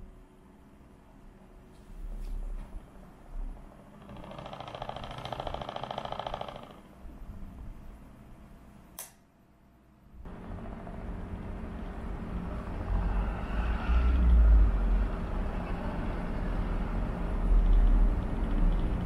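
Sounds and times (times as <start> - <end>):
low outdoor rumble: 0.0 - 4.5, 10.0 - 19.0
small electric fan humming: 0.0 - 19.0
click: 9.0 - 9.2.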